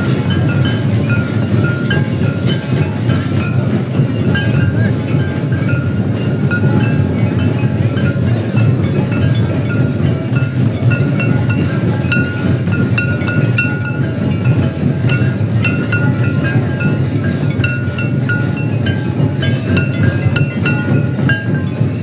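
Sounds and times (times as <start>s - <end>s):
drums beating: 0.0s - 22.0s.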